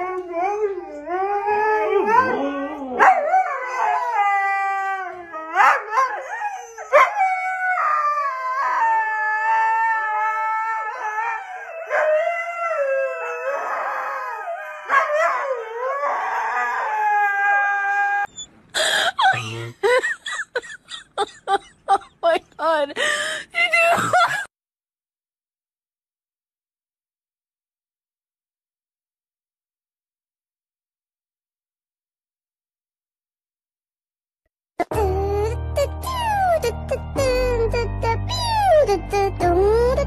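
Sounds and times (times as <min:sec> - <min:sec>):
huskies howling: 0:00.0 - 0:18.4
husky puppy crying: 0:01.8 - 0:18.5.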